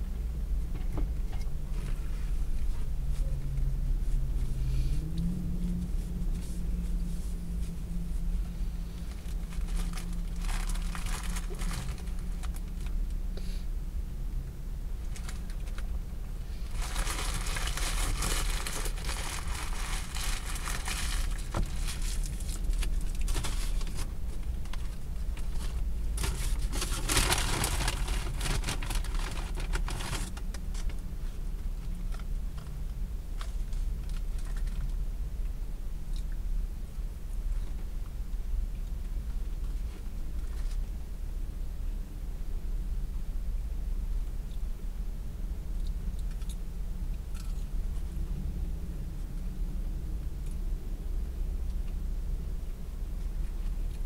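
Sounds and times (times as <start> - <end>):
steady low hum: 0.0 - 54.0
paper wrapper crinkling: 9.0 - 12.7, 16.7 - 24.1, 25.5 - 30.4.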